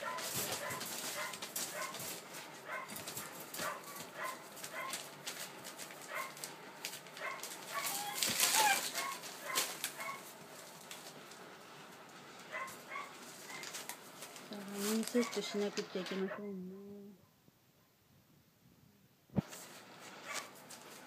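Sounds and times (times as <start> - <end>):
puppies yelping: 0.0 - 5.0, 7.2 - 10.3
paws scuffling on newspaper: 0.0 - 16.4, 19.4 - 21.0
puppies whining and yipping: 7.2 - 10.2.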